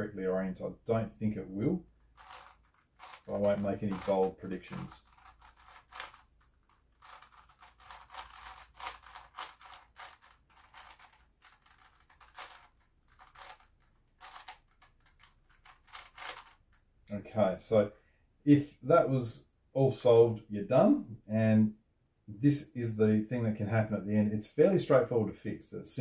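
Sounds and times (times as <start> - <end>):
puzzle cube plastic clicks: 2.0 - 16.9.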